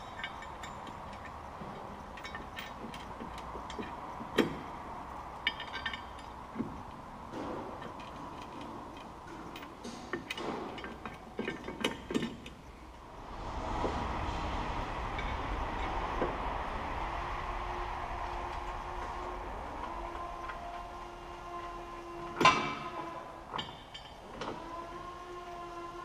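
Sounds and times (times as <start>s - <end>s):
metal clinks and knocks: 0.0s - 12.9s, 23.5s - 24.6s
faint steady hum: 0.0s - 26.0s.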